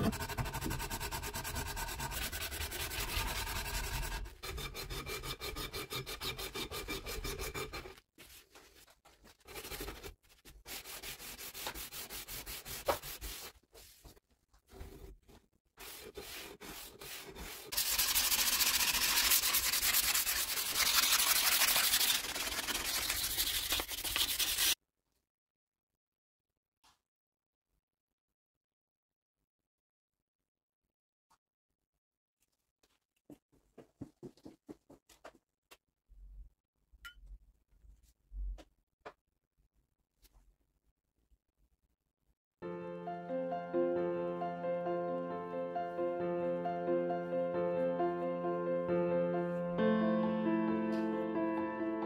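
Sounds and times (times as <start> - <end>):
sanding strokes: 0.0 - 8.0, 10.7 - 14.0, 15.8 - 24.8.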